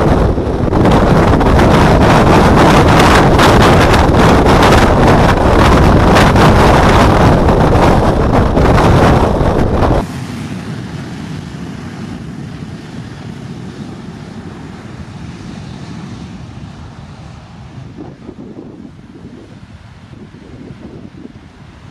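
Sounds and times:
jet engine blast: 0:00.0 - 0:21.9.

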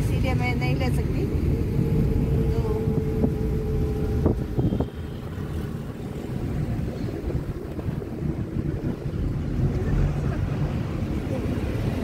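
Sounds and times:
car road and engine rumble: 0:00.0 - 0:12.0
wind hiss: 0:01.0 - 0:10.0.

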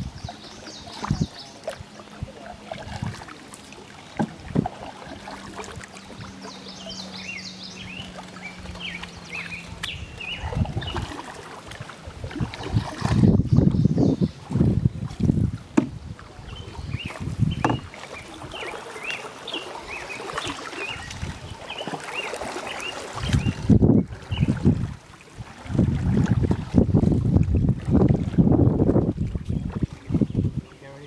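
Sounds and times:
wind buffeting microphone: 0:00.0 - 0:03.2, 0:05.6 - 0:18.6, 0:20.4 - 0:21.7, 0:23.1 - 0:31.0
songbirds chirping: 0:00.0 - 0:25.2, 0:28.6 - 0:31.0
paddle pulling through water: 0:00.0 - 0:31.0.

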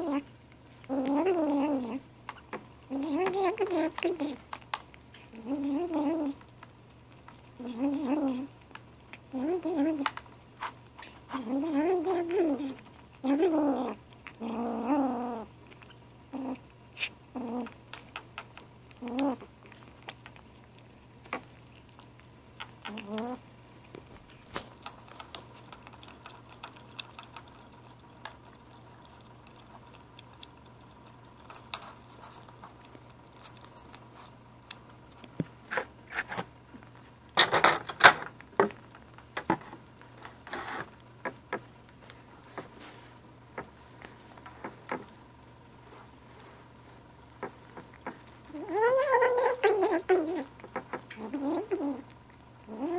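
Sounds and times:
kitten growly calls: 0:48.5 - 0:50.6.

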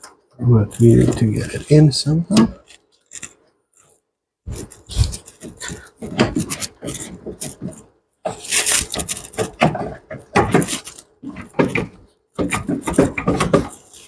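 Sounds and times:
metal scraping and knocking: 0:04.5 - 0:14.0.

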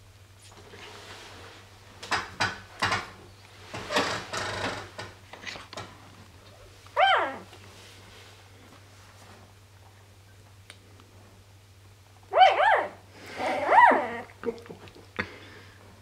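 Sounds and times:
low electrical hum: 0:00.0 - 0:16.0
puppy squealing: 0:07.0 - 0:07.5, 0:12.3 - 0:14.3.

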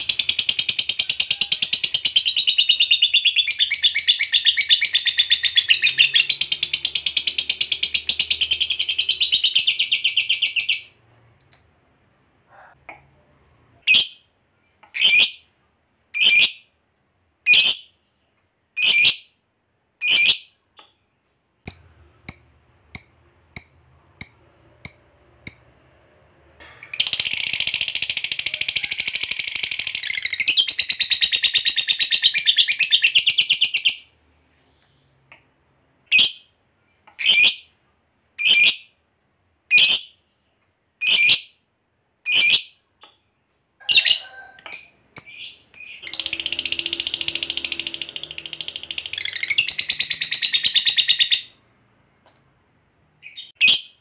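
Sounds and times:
lovebird chirping: 0:00.0 - 0:11.0, 0:43.8 - 0:51.6.

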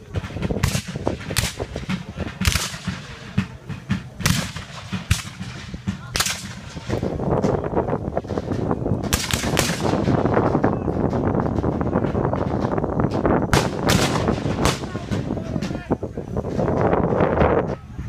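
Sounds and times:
steady rushing noise: 0:00.0 - 0:18.0
rifle shots: 0:00.6 - 0:03.5, 0:04.2 - 0:07.1, 0:09.1 - 0:10.2, 0:13.5 - 0:15.1.

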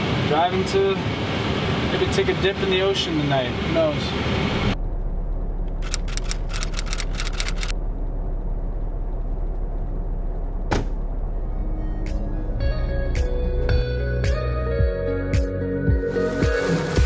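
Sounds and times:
van driving on highway: 0:00.0 - 0:14.2
rapid crackling clicks: 0:05.7 - 0:07.8.

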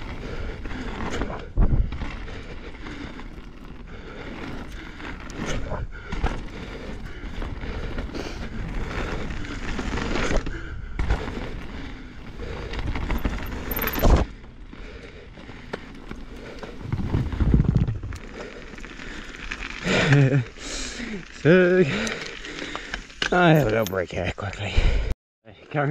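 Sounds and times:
bike rattling and knocking: 0:00.0 - 0:14.5
bike tyres rolling over dirt: 0:00.0 - 0:24.0
wind rumble on microphone: 0:01.5 - 0:02.0, 0:16.8 - 0:18.2.

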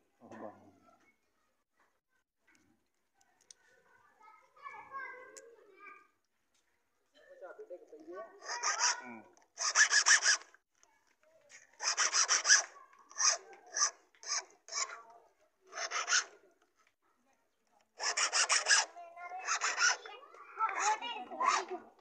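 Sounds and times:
hand file rasping on metal: 0:08.3 - 0:10.6, 0:11.8 - 0:15.1, 0:15.7 - 0:16.4, 0:18.0 - 0:21.8.

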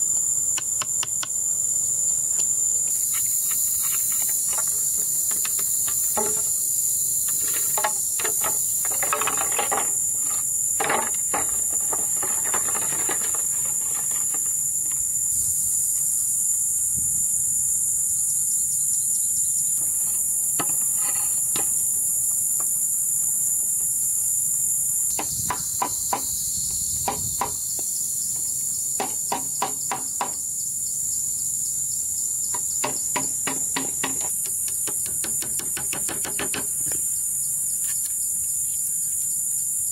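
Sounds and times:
insect chorus: 0:00.0 - 0:39.9
bamboo poles knocking: 0:04.5 - 0:06.6, 0:07.3 - 0:15.0, 0:20.6 - 0:21.8, 0:27.0 - 0:27.6, 0:29.0 - 0:30.4, 0:32.5 - 0:37.0.

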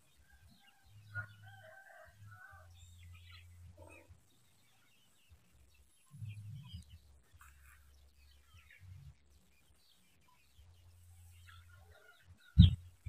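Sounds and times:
faint bird chirps: 0:00.1 - 0:13.0
low microphone rumble: 0:12.6 - 0:13.0.

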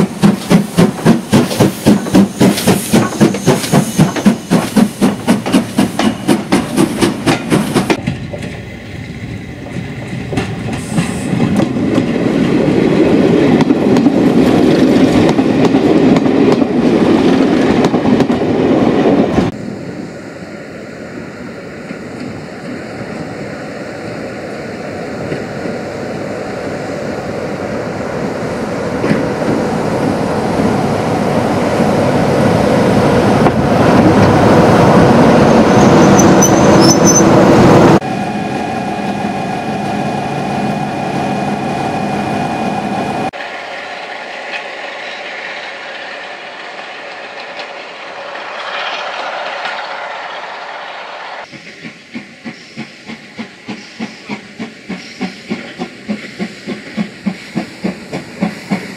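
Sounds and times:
steam locomotive chuffing: 0:00.0 - 0:12.4, 0:43.3 - 0:58.9
diesel locomotive working a train: 0:00.0 - 0:58.9
escaping steam hiss: 0:00.1 - 0:07.8, 0:10.5 - 0:11.6, 0:43.3 - 0:58.9.

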